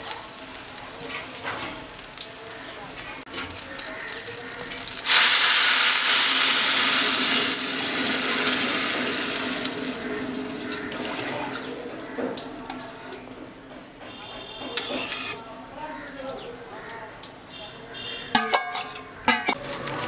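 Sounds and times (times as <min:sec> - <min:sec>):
water pouring into pot: 0:03.4 - 0:13.3.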